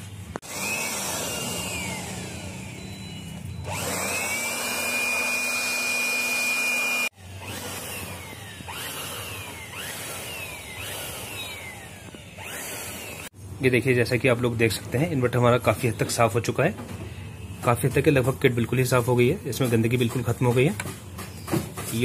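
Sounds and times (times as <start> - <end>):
electric air blower whining: 0.0 - 13.4.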